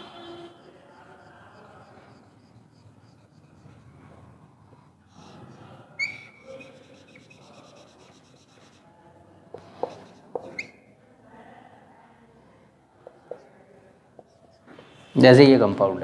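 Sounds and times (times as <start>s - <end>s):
marker squeaking on whiteboard: 0.0s - 8.9s, 9.5s - 10.9s, 13.0s - 15.2s
marker scratching on whiteboard: 0.0s - 10.8s, 13.0s - 15.1s
marker tip tapping: 9.5s - 10.7s.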